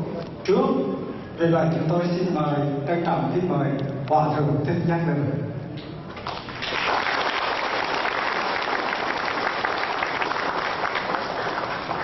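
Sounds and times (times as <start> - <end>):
audience applauding: 6.2 - 12.0.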